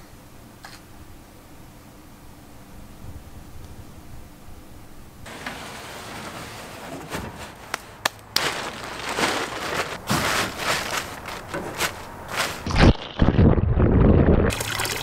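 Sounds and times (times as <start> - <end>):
plastic tarp crinkling: 5.3 - 13.3.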